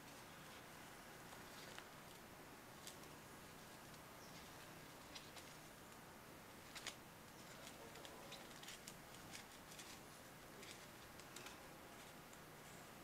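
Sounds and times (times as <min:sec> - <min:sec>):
hands handling ribbon: 0:06.6 - 0:12.4.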